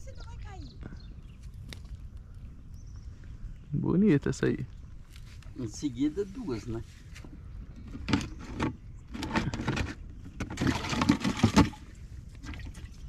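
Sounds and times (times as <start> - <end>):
plastic bucket rattling and knocking: 7.8 - 12.9.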